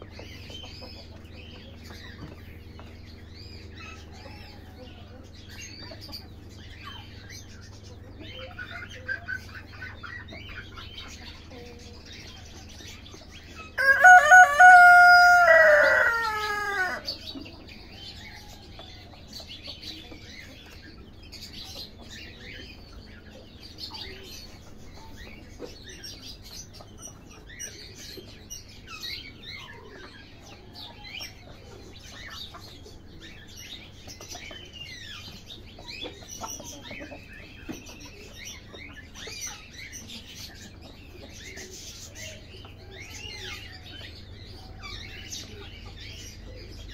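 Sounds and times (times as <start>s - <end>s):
birds chirping: 0.0s - 46.9s
chickens clucking: 0.0s - 46.9s
rooster crowing: 13.8s - 17.2s.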